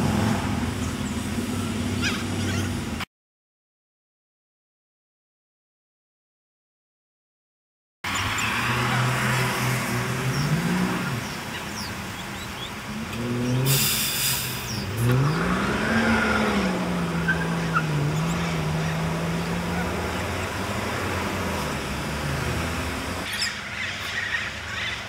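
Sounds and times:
car engines accelerating: 0.0 - 3.1, 8.1 - 25.0
short harsh hiss: 13.7 - 14.8.

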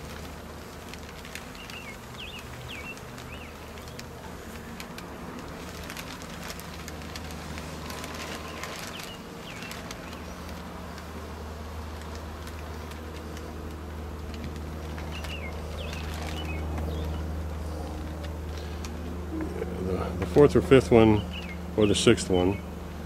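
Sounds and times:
bees buzzing: 0.0 - 23.0
bird chirping: 1.4 - 4.0, 8.3 - 10.5, 14.9 - 17.4, 21.2 - 22.7.

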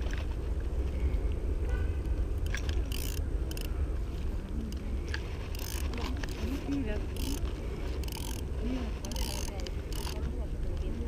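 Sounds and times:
faint distant voices: 2.9 - 11.0.

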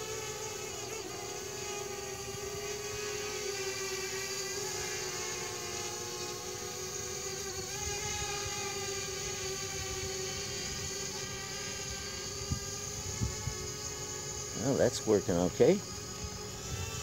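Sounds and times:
quadcopter motors whining: 0.0 - 17.0.

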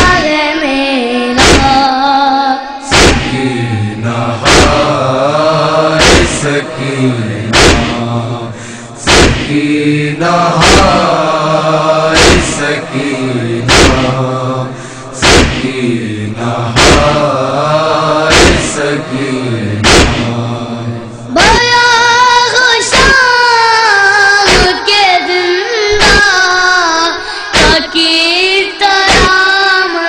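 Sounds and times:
voices chanting a lament: 0.0 - 30.0
rhythmic chest-beating thumps: 1.4 - 1.8, 2.9 - 21.7, 24.4 - 24.9, 27.6 - 28.0, 29.1 - 29.4.

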